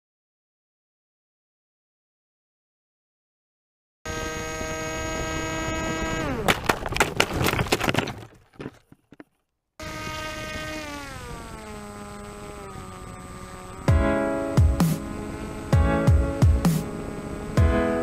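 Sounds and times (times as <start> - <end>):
electric motor and propeller whining: 4.1 - 7.0, 9.8 - 18.0.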